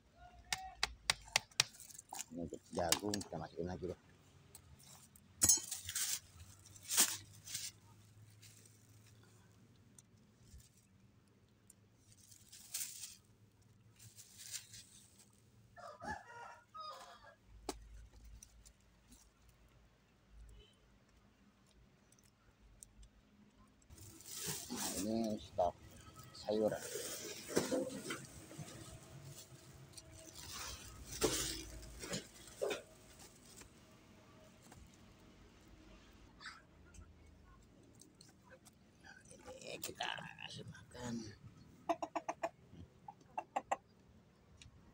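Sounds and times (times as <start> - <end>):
cabbage leaves being handled: 5.6 - 9.2, 12.0 - 15.4, 23.9 - 33.7
plastic sack rustling: 12.0 - 13.2, 23.9 - 33.7.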